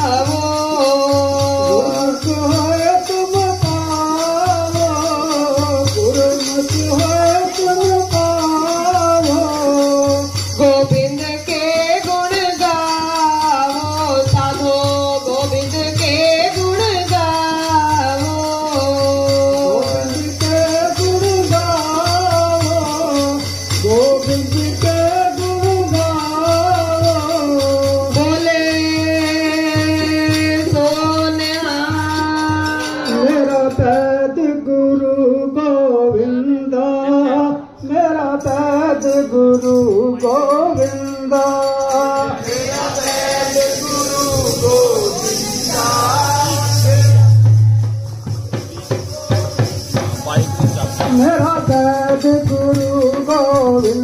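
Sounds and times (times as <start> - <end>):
jingling rattle percussion: 0.0 - 34.3, 38.3 - 54.0
devotional hymn singing: 0.0 - 54.0
harmonium: 38.0 - 48.2.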